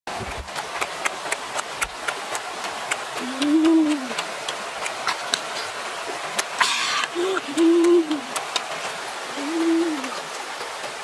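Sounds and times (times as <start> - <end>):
person humming: 3.2 - 4.2, 6.6 - 8.4, 9.3 - 10.2.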